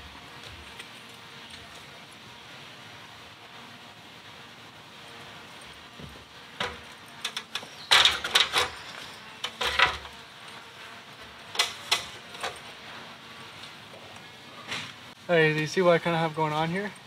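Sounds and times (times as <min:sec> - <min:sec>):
knocks and clanks on metal: 0:06.0 - 0:10.2.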